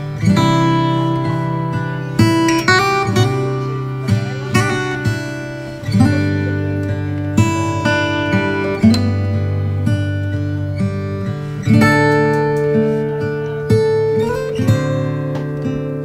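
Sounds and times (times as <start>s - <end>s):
acoustic guitar strummed and picked: 0.0s - 16.0s.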